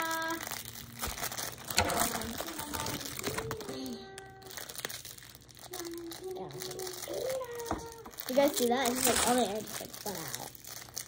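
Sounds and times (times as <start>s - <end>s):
plastic wrapper crinkling: 0.0s - 11.0s
scissors cutting plastic: 0.0s - 11.0s.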